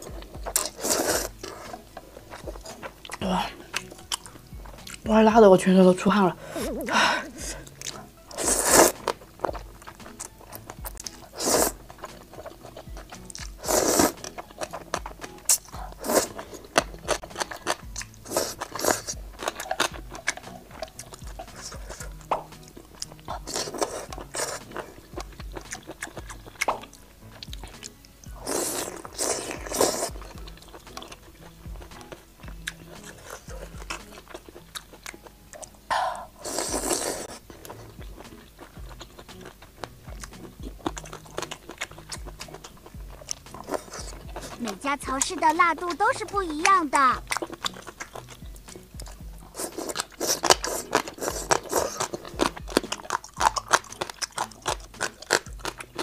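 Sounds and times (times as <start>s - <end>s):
crunching and chewing: 0.0s - 5.1s, 6.6s - 56.0s
quiet music: 0.0s - 56.0s
noodle slurps: 0.5s - 1.9s, 6.5s - 10.2s, 11.1s - 12.8s, 13.5s - 14.8s, 17.4s - 20.6s, 23.2s - 25.1s, 28.3s - 30.3s, 35.9s - 38.0s, 49.4s - 56.0s.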